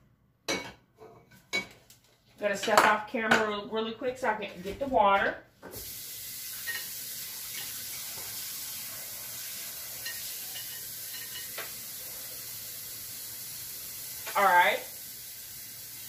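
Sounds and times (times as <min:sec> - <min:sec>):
pot of beans hissing: 0:05.7 - 0:16.0.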